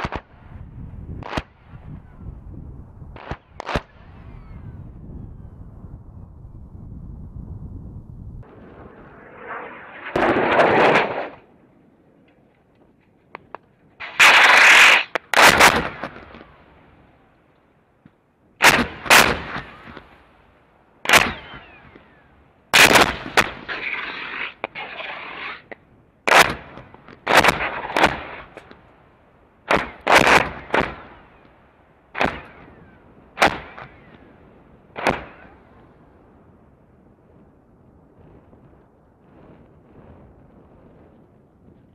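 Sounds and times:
explosive cracks: 0:00.0 - 0:00.3, 0:08.4 - 0:11.5, 0:14.0 - 0:16.4, 0:18.6 - 0:20.1, 0:22.8 - 0:28.8, 0:29.7 - 0:31.2, 0:32.1 - 0:32.7, 0:33.4 - 0:34.2, 0:34.9 - 0:35.6.

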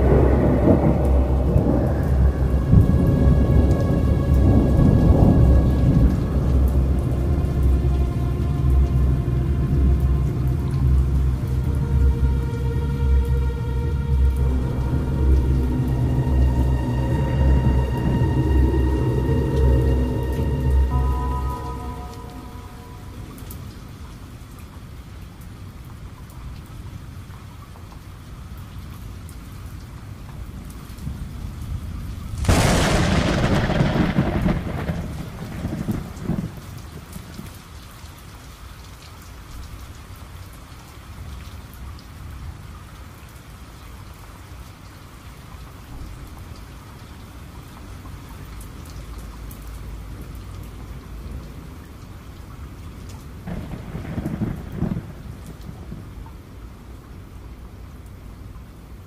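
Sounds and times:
thunder: 0:00.0 - 0:23.8, 0:31.8 - 0:37.6, 0:53.4 - 0:56.4
steady rain: 0:00.0 - 0:59.0.

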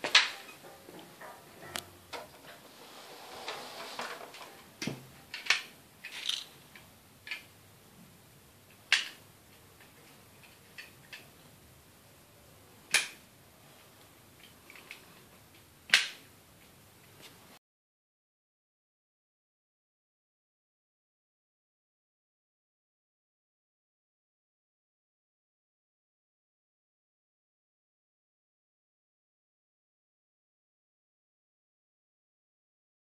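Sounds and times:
soft rustle: 0:00.4 - 0:04.8
plastic toy clicks and knocks: 0:05.3 - 0:07.5.

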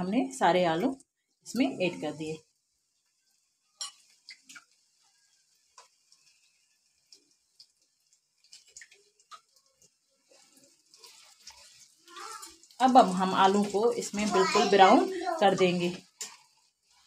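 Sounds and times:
potatoes frying in oil: 0:00.0 - 0:17.0
oil popping: 0:02.8 - 0:14.5.

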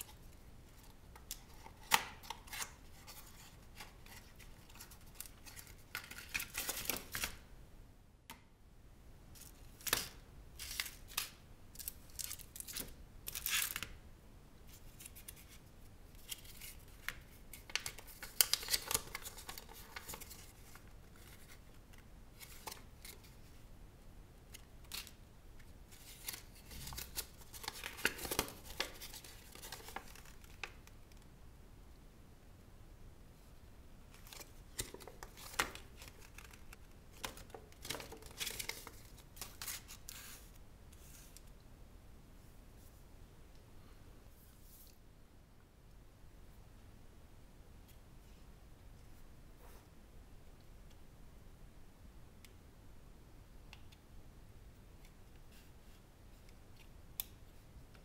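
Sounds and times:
paper leaflet rustling: 0:34.2 - 0:41.4.

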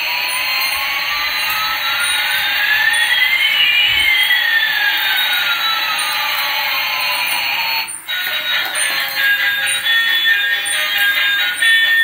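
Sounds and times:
sweeping whistling tones: 0:00.0 - 0:12.0.

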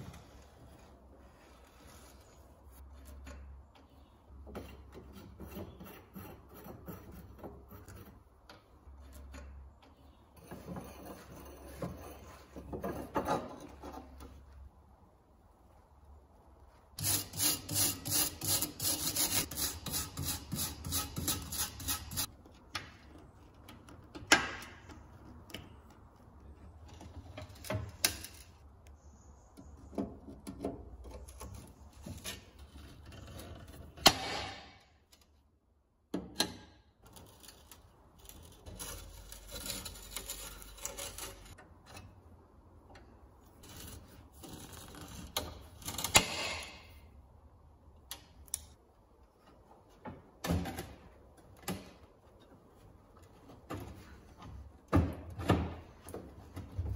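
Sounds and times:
pincers scraping metal: 0:17.0 - 0:22.3, 0:37.0 - 0:42.3.

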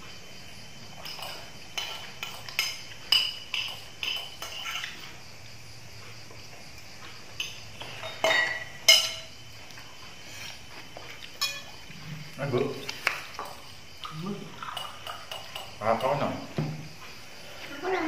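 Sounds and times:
spoons clinking against plates: 0:00.9 - 0:05.0, 0:07.4 - 0:09.4, 0:11.2 - 0:11.8, 0:14.6 - 0:16.6.

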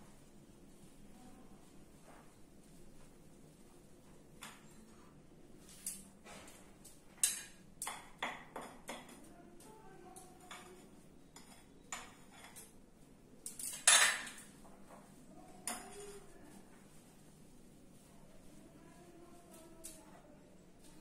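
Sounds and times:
utensils clinking against a bowl: 0:07.2 - 0:09.3, 0:10.2 - 0:12.8, 0:13.4 - 0:14.6, 0:15.6 - 0:16.3.

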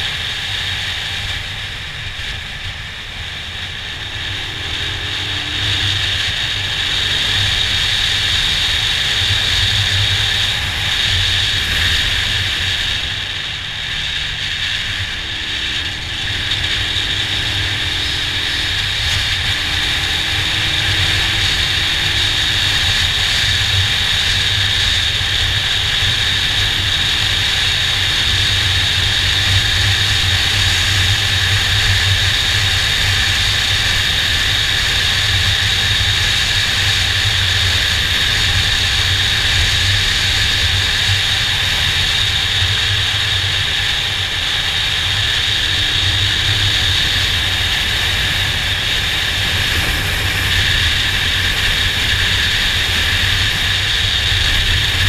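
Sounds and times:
motorcycle engine cruising: 0:00.0 - 0:55.0
wind rushing over microphone: 0:00.0 - 0:55.0.

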